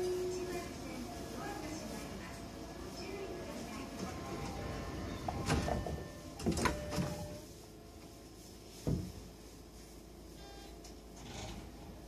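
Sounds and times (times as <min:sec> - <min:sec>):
low hum of standing train: 0:00.0 - 0:12.0
train sliding doors shutting: 0:03.9 - 0:07.4.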